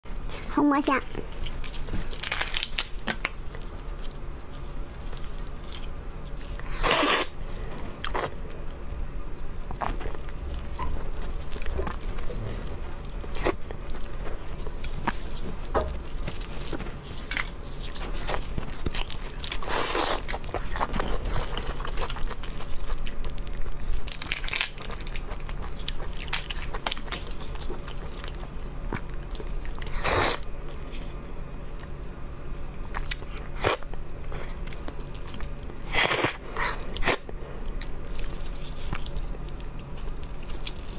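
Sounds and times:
biting and chewing: 1.3 - 32.0, 32.7 - 40.9
shrimp shells cracking: 1.6 - 3.4.

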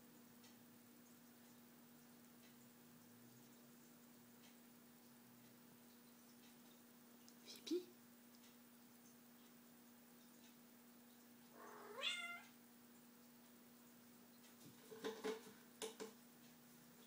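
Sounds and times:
cat meowing: 11.6 - 12.5.

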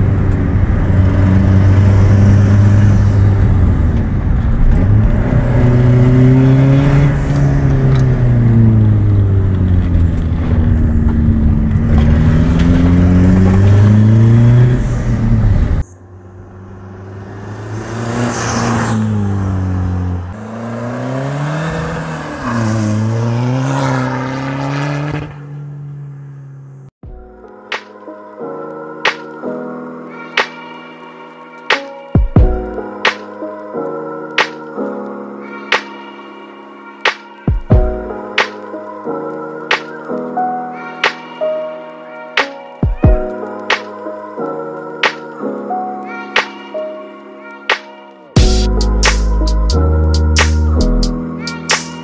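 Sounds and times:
diesel car engine revving: 0.0 - 27.0.

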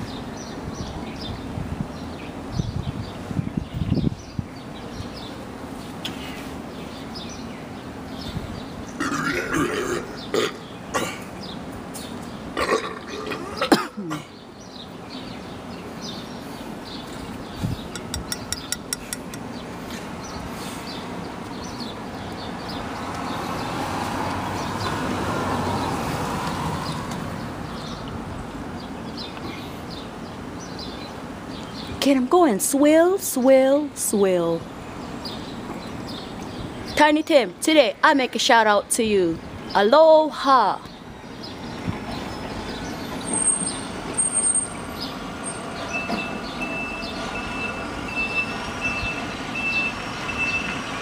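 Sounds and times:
man burping: 9.0 - 11.3, 12.6 - 14.3.

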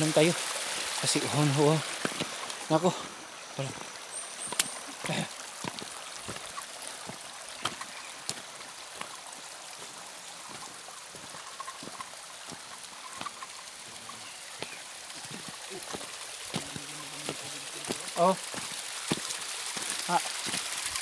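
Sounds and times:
stream trickling over stones: 0.0 - 21.0
footsteps on loose rock: 2.0 - 2.6, 5.6 - 9.2, 14.6 - 20.7.

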